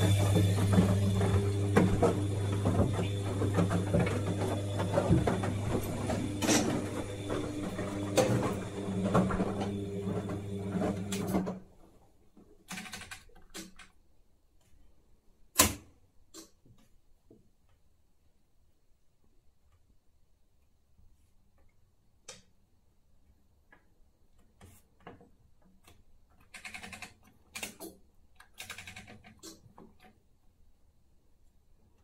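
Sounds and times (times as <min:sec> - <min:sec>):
washer-dryer humming and rattling: 0:00.0 - 0:11.8.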